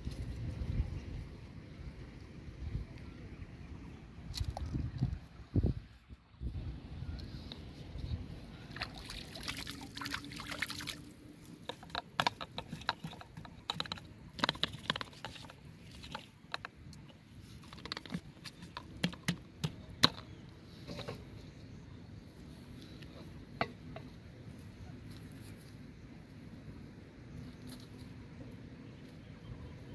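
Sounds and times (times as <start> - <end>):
small water sounds: 3.6 - 5.5, 7.2 - 19.3
clicks taps and rustles: 11.5 - 21.3.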